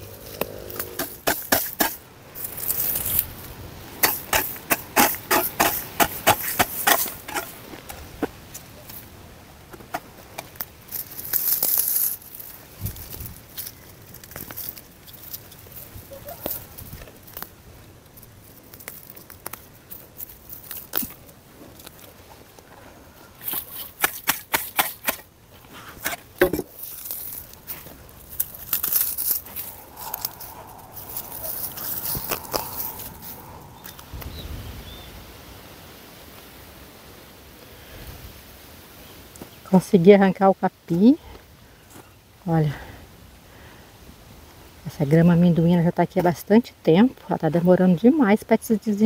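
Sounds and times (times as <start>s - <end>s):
hoe scraping and striking ground: 0.0s - 9.0s, 23.4s - 34.1s
dry grass crackling and tearing: 0.0s - 9.1s, 9.7s - 34.4s.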